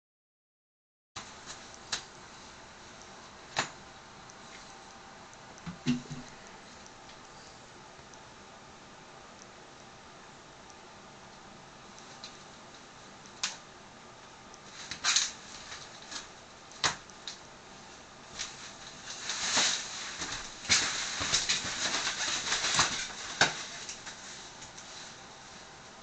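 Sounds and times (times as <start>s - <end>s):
shower curtain rustling: 18.3s - 25.7s.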